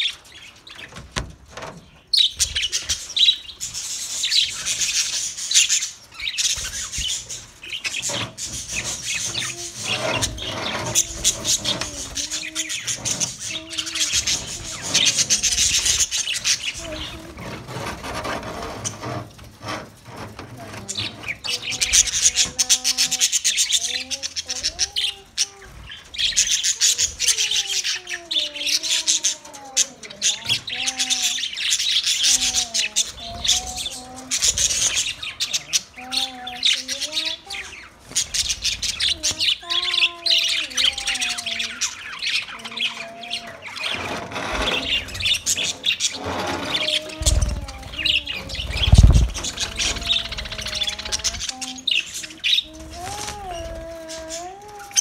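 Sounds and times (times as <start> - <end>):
budgerigars chattering: 30.1 - 52.7.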